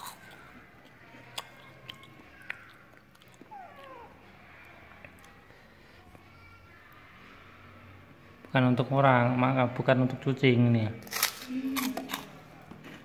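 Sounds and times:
person chewing crunchy crackers: 0.0s - 4.1s, 11.0s - 13.0s.

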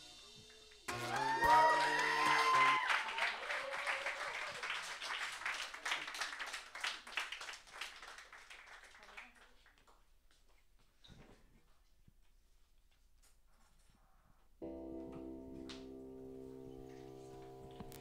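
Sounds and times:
audience applauding: 0.9s - 9.8s.

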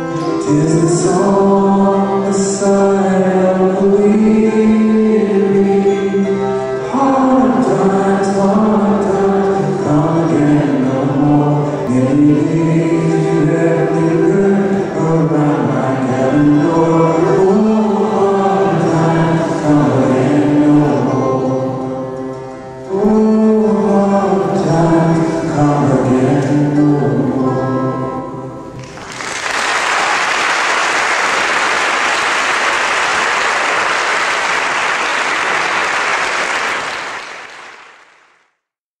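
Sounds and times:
voices singing folk song: 0.0s - 28.7s
audience applauding: 28.8s - 38.5s.

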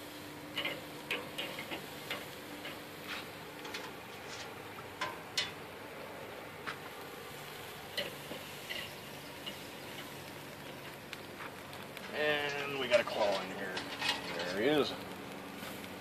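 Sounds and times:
metal tongs clicking on grill: 0.5s - 5.6s, 7.9s - 10.9s, 13.3s - 15.1s.

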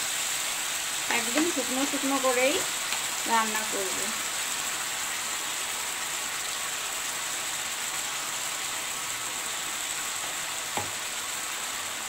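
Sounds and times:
food sizzling in oil: 0.0s - 12.0s
knock: 10.8s - 11.0s.

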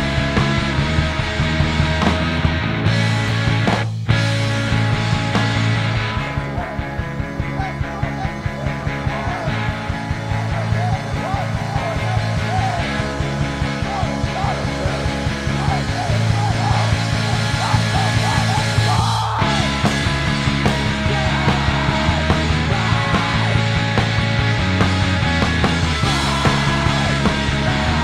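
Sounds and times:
distorted guitars and bass: 0.0s - 28.0s
wavering higher line: 6.3s - 23.9s
fast drum hits: 9.1s - 28.0s.

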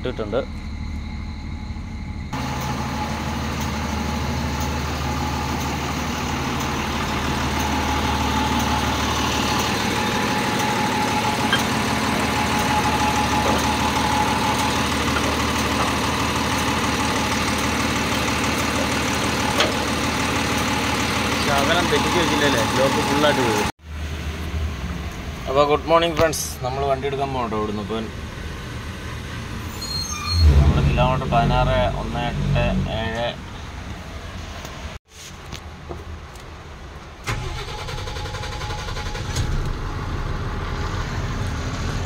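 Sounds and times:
diesel truck engine idling: 0.0s - 24.4s, 37.2s - 42.0s.

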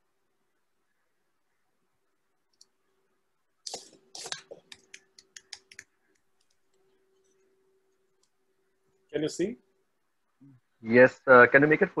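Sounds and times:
computer keyboard typing: 4.3s - 6.8s.

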